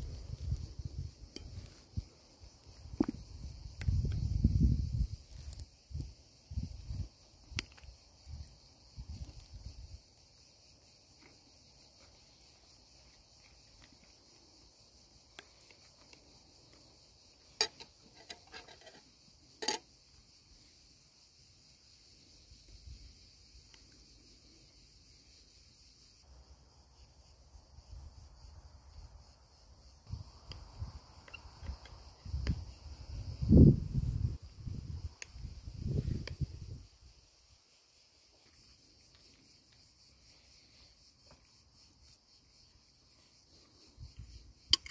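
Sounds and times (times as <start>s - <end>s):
crickets chirping: 0.0s - 44.9s.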